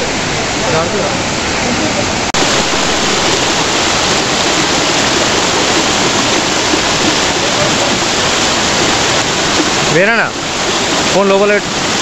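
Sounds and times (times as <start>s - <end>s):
waterfall roaring: 0.0s - 12.0s.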